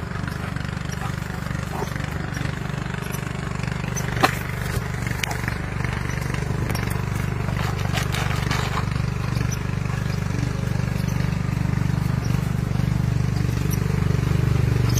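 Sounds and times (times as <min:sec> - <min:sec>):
small engine droning: 0:00.0 - 0:14.9
light clicks and scratches: 0:04.0 - 0:13.8.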